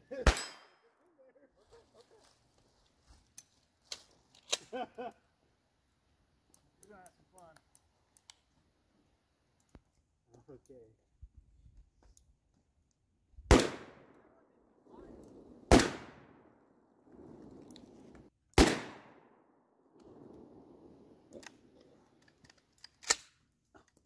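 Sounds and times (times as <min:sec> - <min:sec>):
faint clicks: 0:06.5 - 0:08.6
gunshots with echo: 0:13.5 - 0:14.1, 0:15.7 - 0:16.4, 0:18.6 - 0:19.2.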